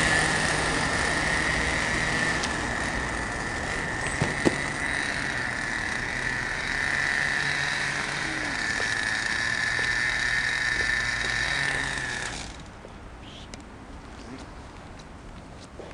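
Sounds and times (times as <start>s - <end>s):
toy truck motor whining: 0.0s - 12.7s.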